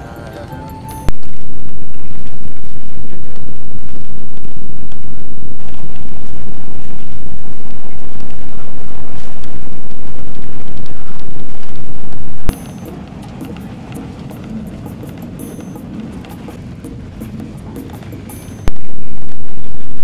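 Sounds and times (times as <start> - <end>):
train carriage rumble: 12.6 - 18.7.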